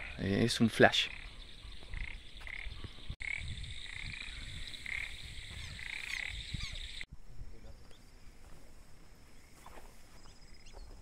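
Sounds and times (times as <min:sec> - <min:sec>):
frogs croaking: 0:00.0 - 0:08.4.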